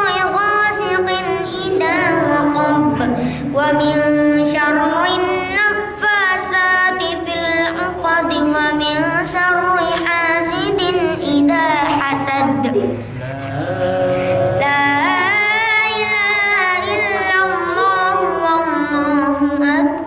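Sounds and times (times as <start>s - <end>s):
boy chanting into microphone: 0.0s - 20.0s.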